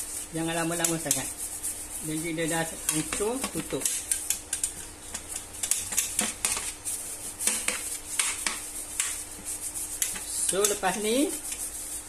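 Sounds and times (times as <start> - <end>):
scraping and clicking on metal tray: 2.7 - 6.8, 10.0 - 11.0.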